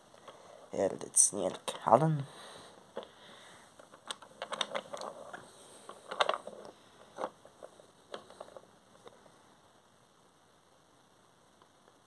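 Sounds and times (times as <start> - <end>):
plastic toy pieces clicking and rattling: 3.8 - 8.6.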